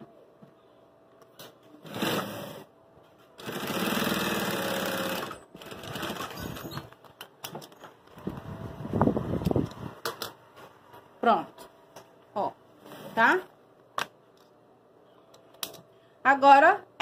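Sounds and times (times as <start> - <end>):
sewing machine stitching: 1.8 - 2.7, 3.4 - 6.9.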